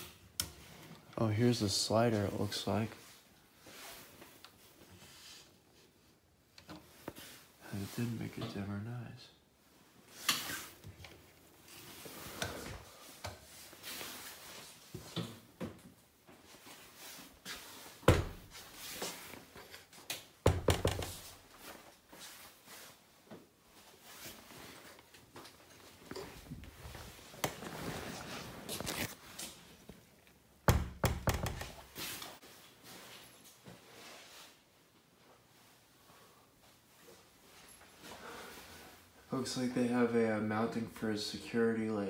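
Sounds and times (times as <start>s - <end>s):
knocks on door and padded walls: 20.4s - 21.2s, 30.7s - 31.8s.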